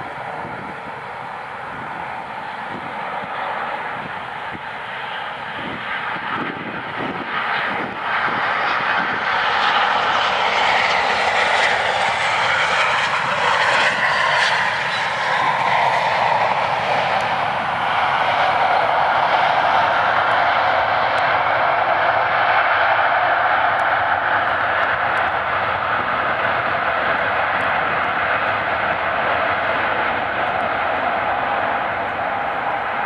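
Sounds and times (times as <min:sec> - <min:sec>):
jet engines rushing: 0:00.0 - 0:33.0.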